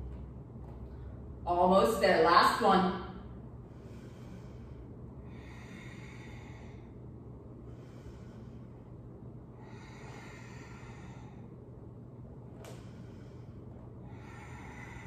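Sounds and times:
faint low hum: 0.0s - 15.0s
person breathing: 3.5s - 15.0s.

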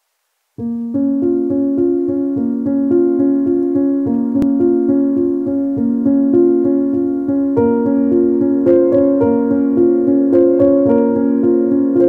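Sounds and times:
keyboard repeated notes: 0.6s - 12.0s.

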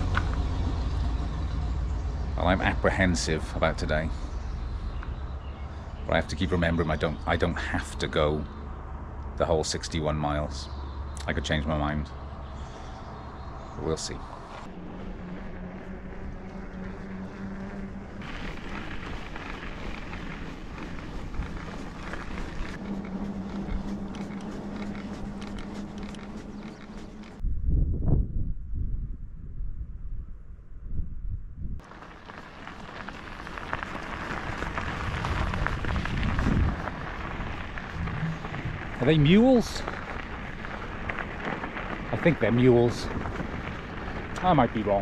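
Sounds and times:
bicycle tyres rolling on gravel: 0.0s - 8.6s, 11.4s - 27.4s, 31.8s - 45.0s
low hum: 0.0s - 45.0s
wind on microphone: 18.2s - 31.8s, 34.1s - 42.2s.

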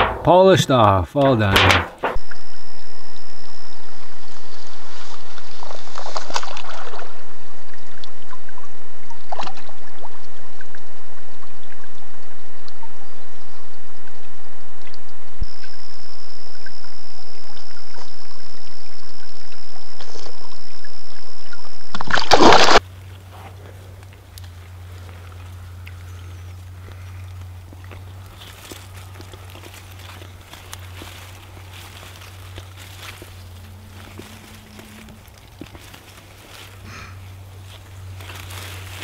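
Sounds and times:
water splashing: 5.0s - 10.8s, 21.5s - 39.0s
water trickling: 23.9s - 39.0s.

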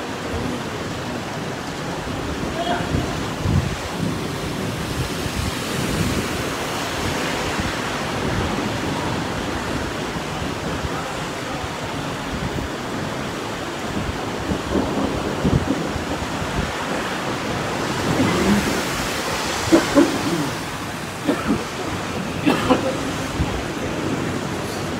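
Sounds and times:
heavy rain pouring: 0.0s - 24.9s
wind buffeting microphone: 0.1s - 24.9s.

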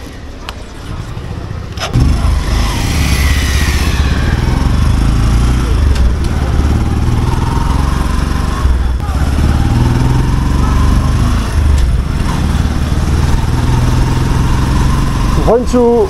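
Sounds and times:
motorcycle engine running: 1.4s - 15.6s.

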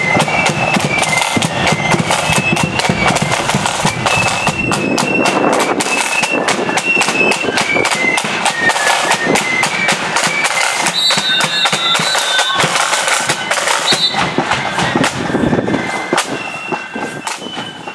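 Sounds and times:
shrill wind instruments melody: 0.0s - 17.9s
side drum strokes: 0.0s - 17.9s.

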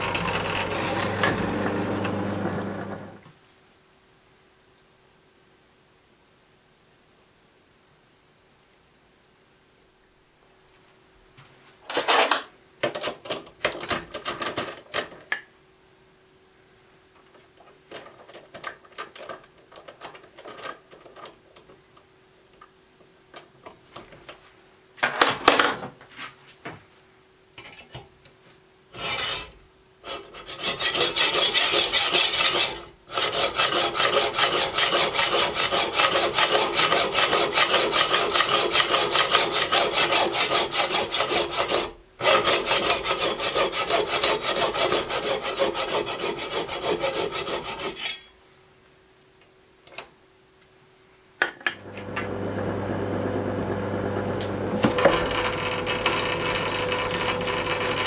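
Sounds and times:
hacksaw sawing metal: 0.1s - 2.1s, 29.0s - 48.3s.

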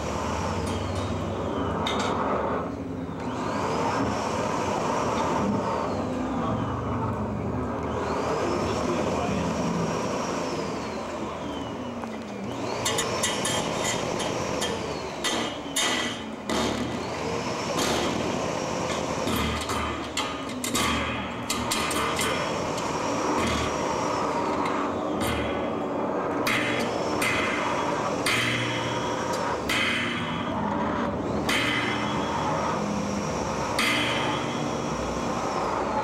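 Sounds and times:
sharp clanks and clicks: 0.6s - 2.4s, 12.0s - 36.0s.

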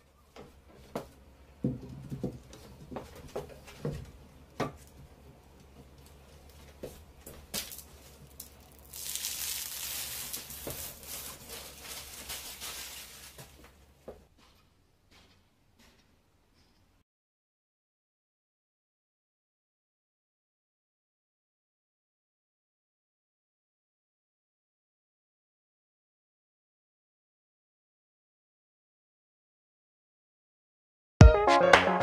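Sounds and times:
plastic film peeling off glass: 7.6s - 13.6s.

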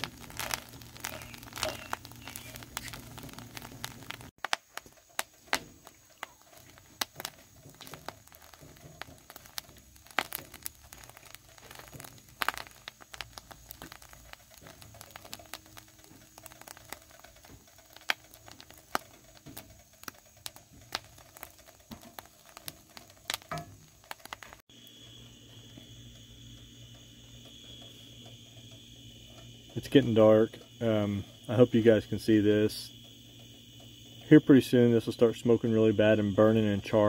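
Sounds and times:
wooden spoon stirring in skillet: 0.0s - 24.6s
egg yolks crackling and popping: 0.0s - 37.0s.

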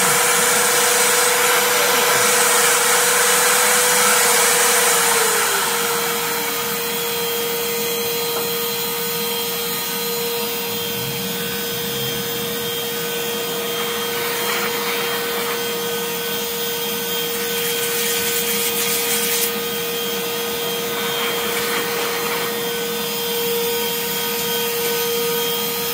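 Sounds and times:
router spindle whine: 0.0s - 25.9s
vacuum rushing: 10.3s - 16.1s.

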